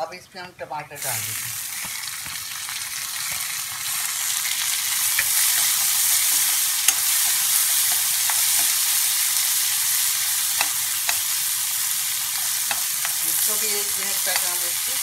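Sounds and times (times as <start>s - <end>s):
vegetables sizzling in hot oil: 1.0s - 15.0s
spatula clacking against pan: 5.1s - 8.9s, 10.5s - 11.4s, 12.3s - 13.2s.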